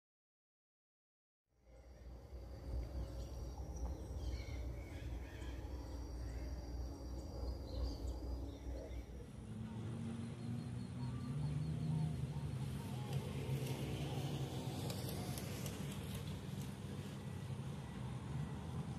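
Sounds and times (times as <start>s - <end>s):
faint bird chirps: 1.6s - 15.4s
low rumble: 1.6s - 18.9s
steady low hum: 1.6s - 18.9s.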